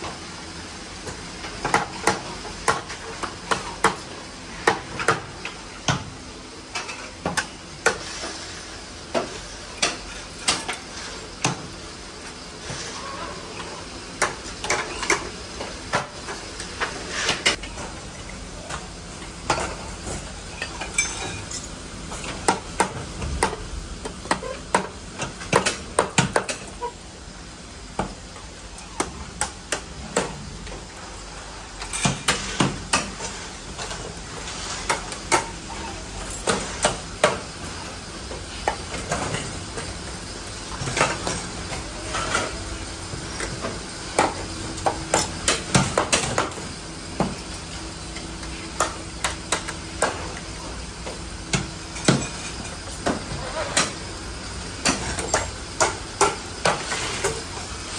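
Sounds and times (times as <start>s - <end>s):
faint machine hum: 0.0s - 57.9s.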